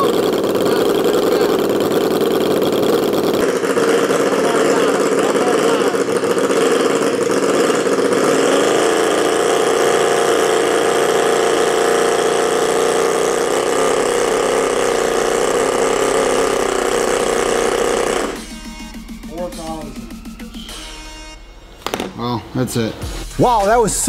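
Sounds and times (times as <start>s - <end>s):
miniature engine running at high revs: 0.0s - 18.8s.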